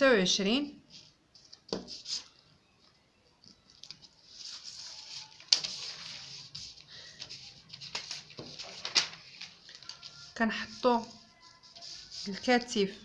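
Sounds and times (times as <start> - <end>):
paper rustling on wooden table: 3.4 - 12.8.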